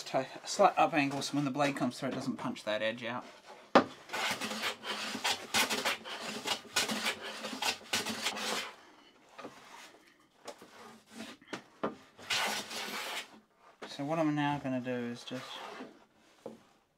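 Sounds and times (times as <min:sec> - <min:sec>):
hand plane rasping on wood: 0:04.1 - 0:08.7, 0:12.2 - 0:13.3.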